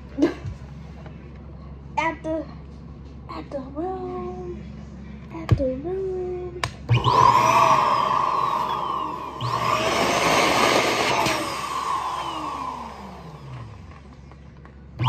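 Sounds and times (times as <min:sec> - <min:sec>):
balloon pump motor whirring: 0:06.9 - 0:14.1.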